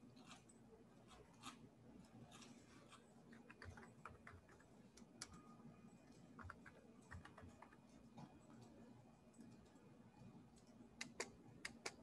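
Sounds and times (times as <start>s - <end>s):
keyboard typing: 3.3s - 5.5s, 6.1s - 7.8s.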